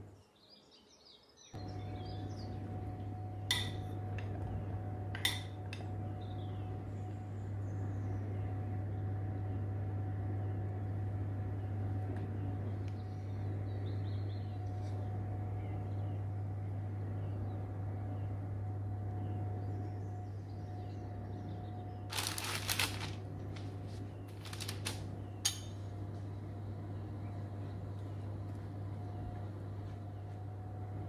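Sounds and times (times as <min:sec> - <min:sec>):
steady low hum: 0:01.6 - 0:31.0
short rustle: 0:22.1 - 0:25.0
kitchen things clicking and knocking: 0:24.3 - 0:25.8.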